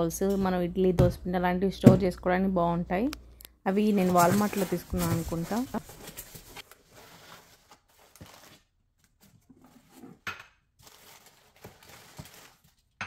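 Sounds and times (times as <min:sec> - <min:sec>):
paper rustling: 0:03.8 - 0:09.9, 0:10.8 - 0:12.9.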